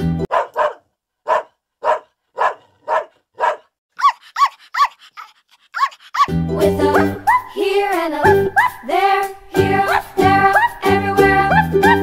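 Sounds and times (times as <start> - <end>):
dog barking: 0.3 - 6.3, 8.5 - 8.8, 9.8 - 10.8
dog yelping: 0.3 - 7.6, 8.3 - 8.9, 9.8 - 10.9.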